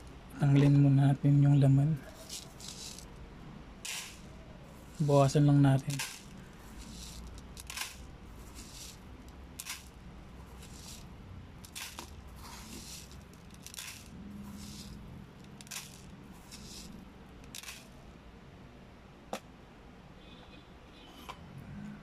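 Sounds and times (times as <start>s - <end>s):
spoon scraping kibble in bowl: 2.0s - 3.1s, 3.9s - 17.9s.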